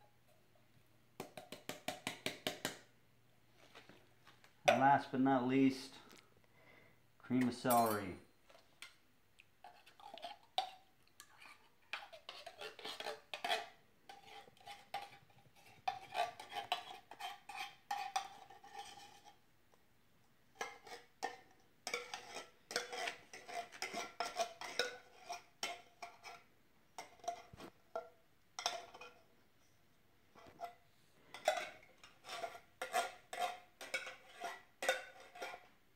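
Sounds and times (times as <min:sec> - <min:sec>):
metal spoon scraping tin can: 0:09.6 - 0:19.4, 0:20.6 - 0:26.4, 0:31.3 - 0:35.7.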